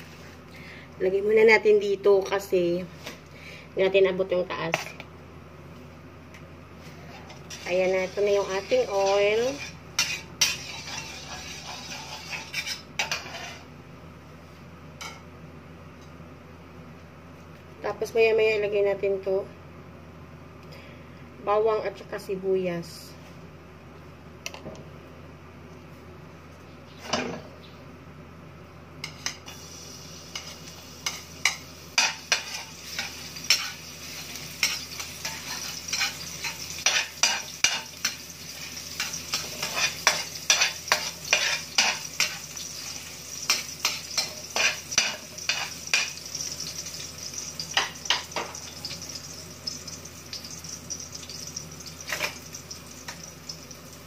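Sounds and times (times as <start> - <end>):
garlic sizzling in hot oil: 7.4 - 13.7, 29.1 - 54.0
metal ladle scraping a wok: 7.4 - 13.7.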